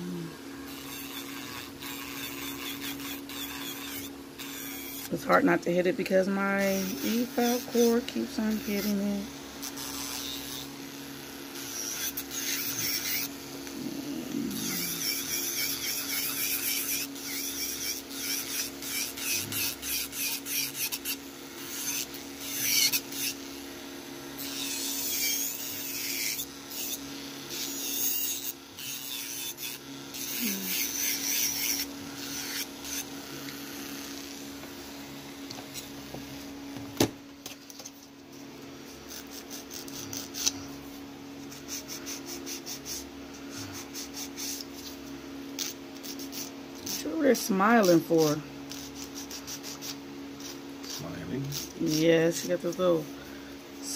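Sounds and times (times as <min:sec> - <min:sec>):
electric nail file humming: 0:00.0 - 0:53.9
bit grinding fingernail: 0:00.7 - 0:05.1, 0:11.6 - 0:23.4, 0:24.4 - 0:34.1, 0:38.9 - 0:40.6.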